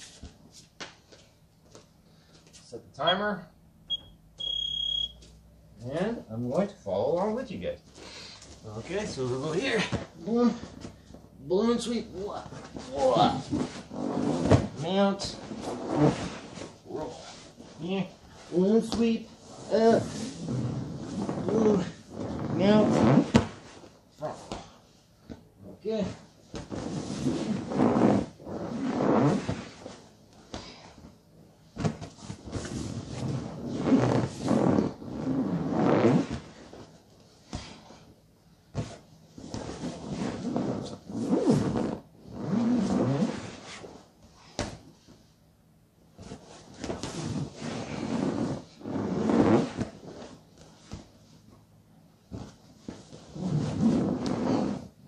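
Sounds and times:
scuffing and rustling on mats: 0.0s - 2.7s, 26.3s - 42.0s, 46.1s - 54.9s
exercise ball rubbing and squeaking: 3.9s - 5.2s, 8.6s - 31.0s, 31.7s - 44.9s, 46.2s - 51.6s, 52.3s - 55.0s
body bumps on mats: 31.7s - 33.2s, 44.4s - 44.9s.

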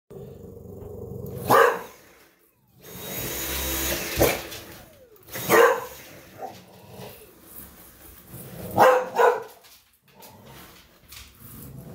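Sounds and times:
vacuum cleaner motor whining: 1.0s - 10.7s
dog barking: 1.4s - 2.0s, 5.4s - 6.6s, 8.8s - 9.6s.

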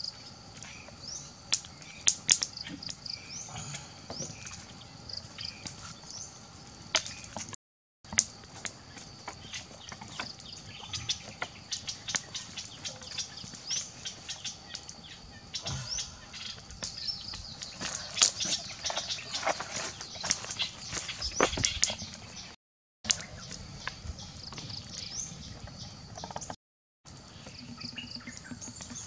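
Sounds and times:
campfire crackling and popping: 1.4s - 3.0s.

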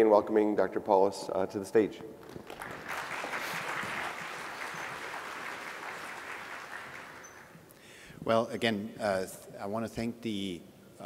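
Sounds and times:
audience applauding: 2.2s - 7.6s.

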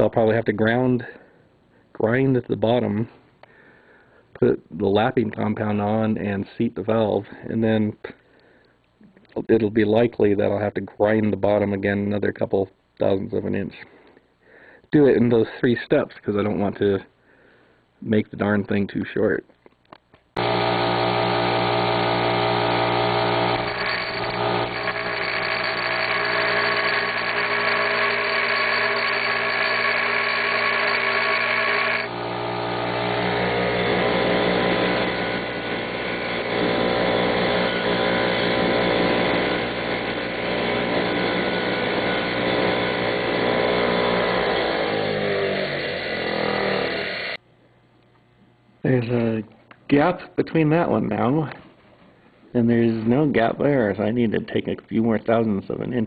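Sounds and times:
bench grinder grinding metal: 20.4s - 47.4s.

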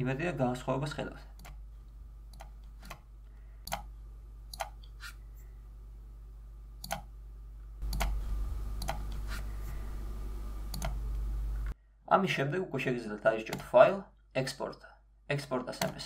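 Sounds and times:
low electrical hum: 0.0s - 16.0s
sharp clicks: 3.6s - 3.9s, 4.5s - 4.9s, 6.8s - 7.1s, 7.8s - 8.2s, 10.7s - 11.0s.

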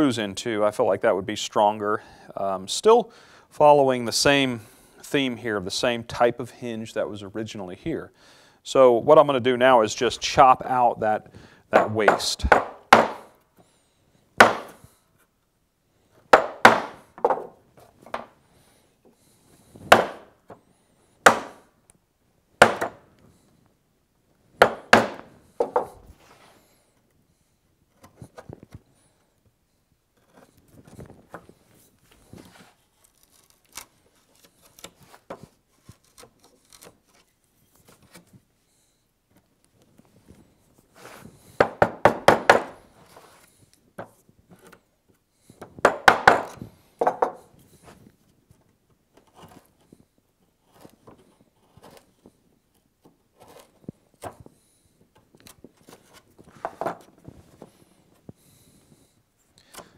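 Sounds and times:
chisel tapping on wood: 11.8s - 13.3s, 16.4s - 17.5s, 24.6s - 25.9s
mallet striking chisel: 11.8s - 13.3s, 14.4s - 14.8s, 24.6s - 25.8s.

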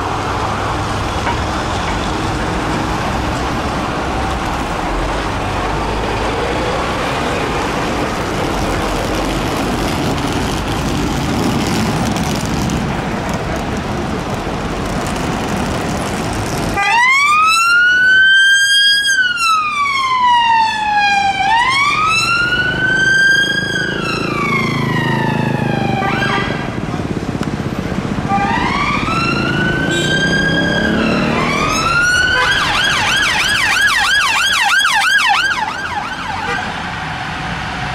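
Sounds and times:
street traffic: 0.0s - 37.9s
police siren wailing: 16.8s - 26.8s, 28.2s - 37.2s.

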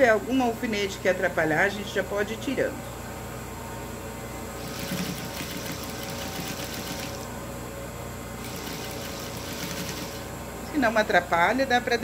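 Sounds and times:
sewing machine motor hum: 4.6s - 7.3s, 8.4s - 10.4s.

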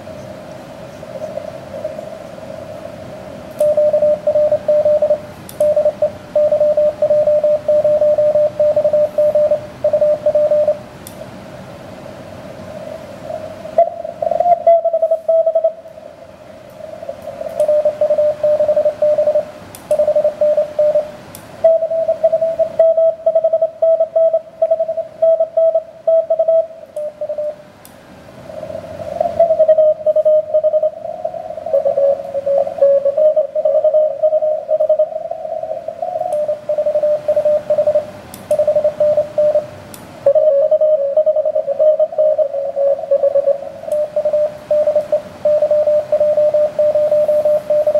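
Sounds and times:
receiver hiss: 0.0s - 47.9s
morse code tones: 3.6s - 10.9s, 13.7s - 15.9s, 17.3s - 27.6s, 29.2s - 47.9s.

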